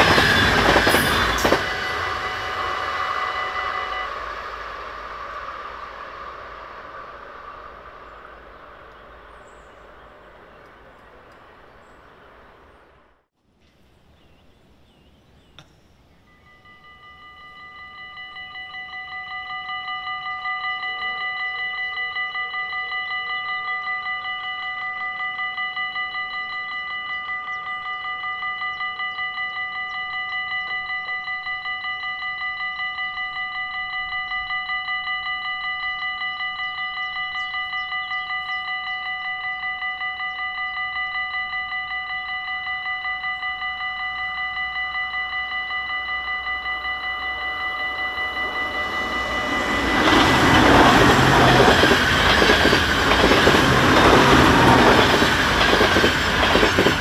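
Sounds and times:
level crossing warning bell: 0.0 - 4.4, 16.2 - 57.0.

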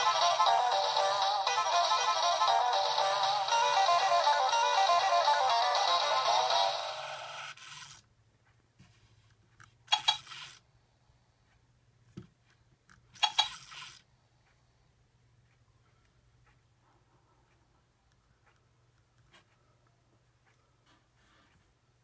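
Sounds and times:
music: 0.0 - 7.4
robot toy electronic sounds: 0.0 - 8.0, 9.9 - 10.6, 13.2 - 14.0.

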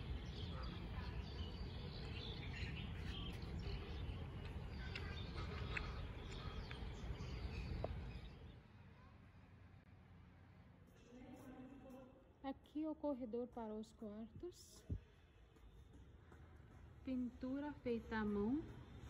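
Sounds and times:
small birds chirping: 0.0 - 9.1.

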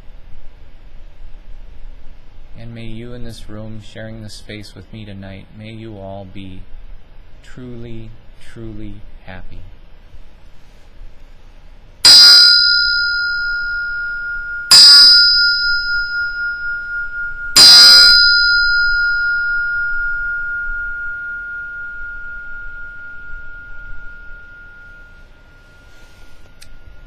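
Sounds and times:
brass hand bell ringing: 12.0 - 27.0.

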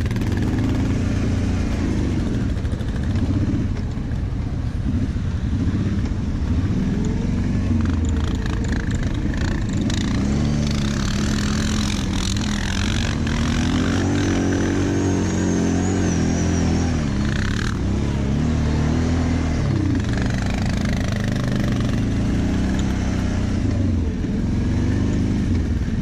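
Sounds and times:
quad bike engine running: 0.0 - 26.0.

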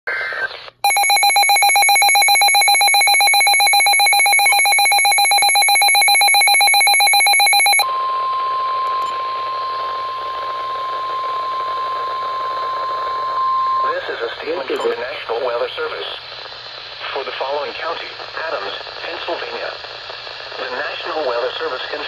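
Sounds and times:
pulsing electronic alarm beep: 0.8 - 10.7
steady warning alarm tone: 0.8 - 11.6
radio hiss: 13.8 - 22.0.

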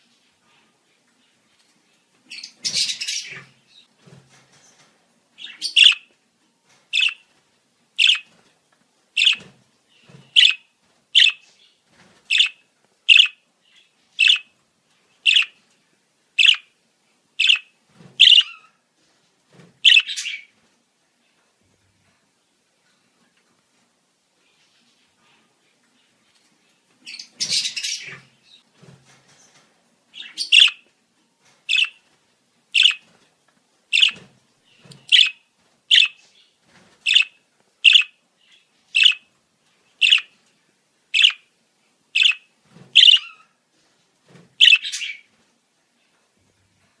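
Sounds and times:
budgerigar chirping: 5.4 - 6.1, 7.0 - 7.2, 8.0 - 8.3, 9.2 - 9.4, 10.3 - 10.6, 11.2 - 11.4, 12.3 - 13.4, 14.2 - 14.5, 15.3 - 15.6, 16.4 - 16.7, 17.4 - 18.7, 19.8 - 20.5, 30.2 - 30.8, 31.7 - 32.0, 32.8 - 33.0, 33.9 - 34.2, 35.0 - 36.2, 37.1 - 38.2, 39.0 - 39.3, 40.0 - 40.3, 41.2 - 41.5, 42.2 - 43.5, 44.6 - 45.3.

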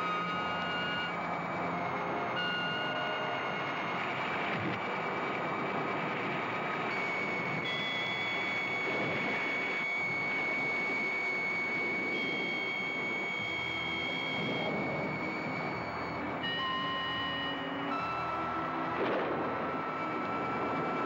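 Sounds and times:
wind roaring: 18.9 - 19.7.

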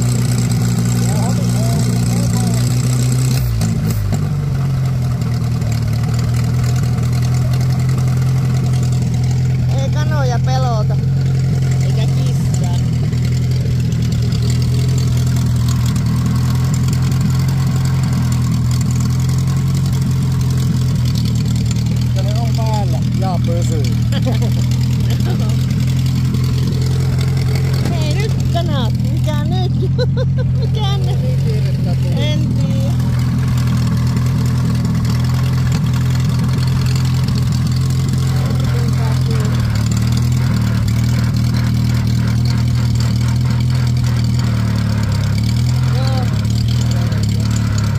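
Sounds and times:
truck engine idling: 0.0 - 47.9.

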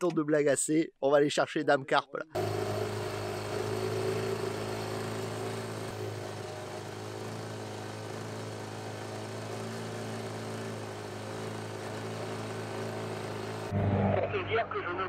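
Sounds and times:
outboard motor running: 2.4 - 13.8.

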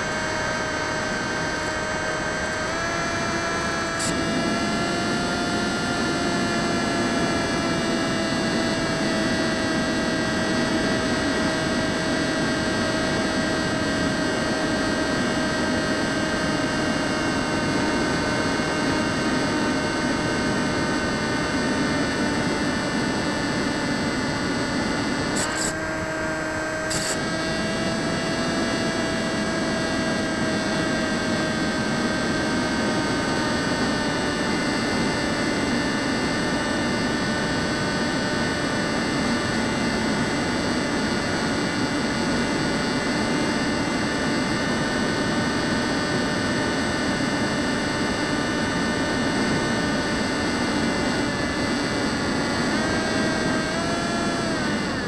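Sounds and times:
model plane motor whining: 0.0 - 55.0.

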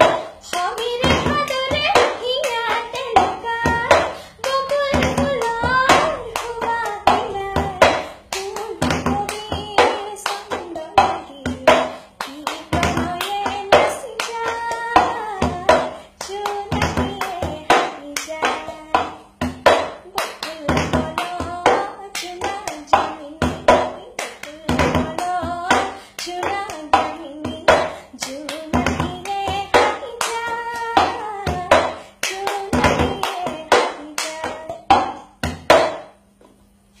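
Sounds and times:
woman singing: 0.0 - 35.9
hand claps: 0.0 - 36.2.

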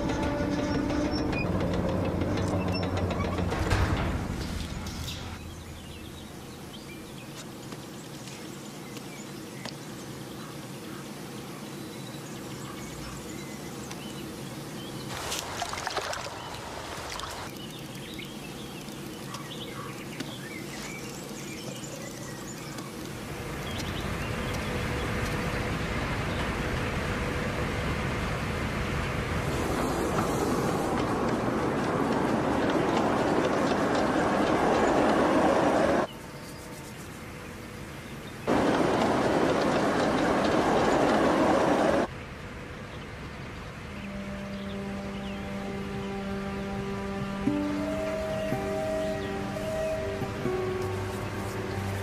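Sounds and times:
boat engine drone: 43.9 - 52.0.

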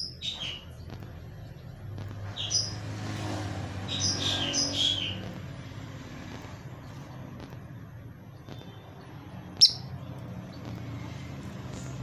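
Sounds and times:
lovebird chirping: 0.0 - 5.7, 8.3 - 11.2.

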